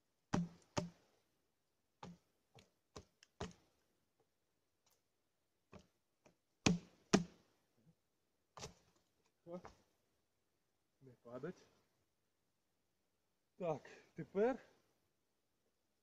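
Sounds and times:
boots knocking on log: 0.4 - 0.9, 3.0 - 3.6.

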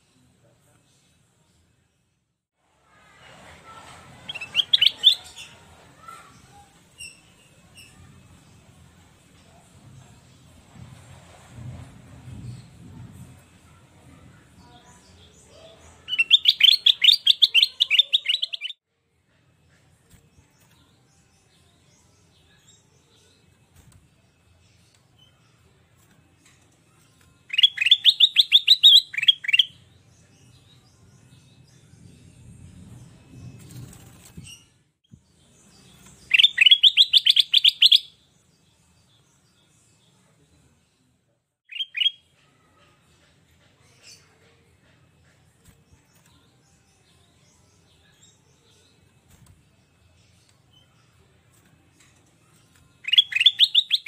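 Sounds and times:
bird chattering song: 4.3 - 5.5, 16.0 - 18.8, 27.5 - 29.7, 36.2 - 38.1, 41.7 - 42.2, 53.0 - 54.0.

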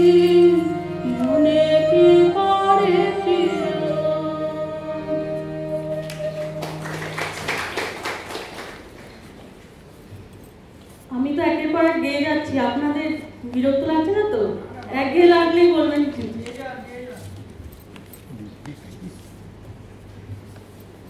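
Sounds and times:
woman singing: 0.0 - 6.6
harmonium: 0.0 - 7.2.

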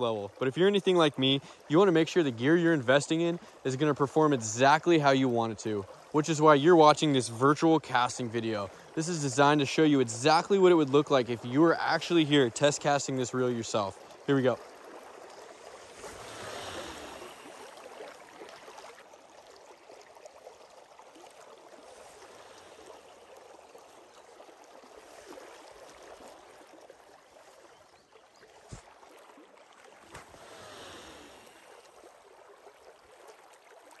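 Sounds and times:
river current rushing: 12.6 - 19.0, 21.6 - 24.2, 30.0 - 32.1.

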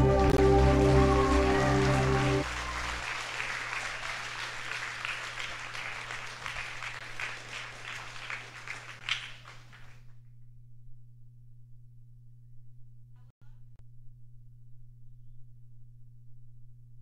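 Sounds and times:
music: 0.0 - 2.5
audience applauding: 0.0 - 10.0.

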